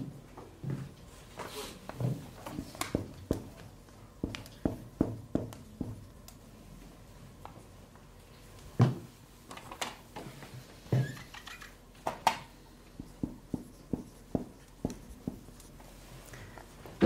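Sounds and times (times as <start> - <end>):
marker tapping on whiteboard: 4.2 - 6.0, 13.0 - 15.5.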